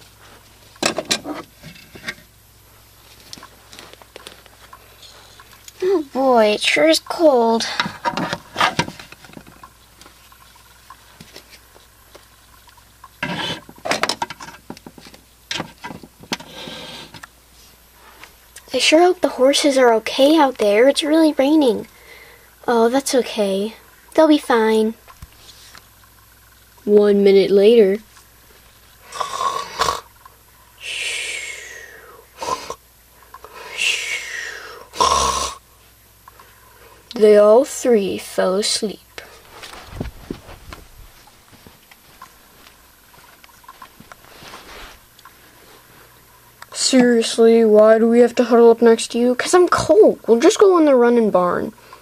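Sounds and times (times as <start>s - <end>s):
cartoon snoring and whistling: 29.1s - 30.1s, 30.8s - 32.8s, 33.7s - 35.6s
handling knocks and rubbing: 39.5s - 45.0s.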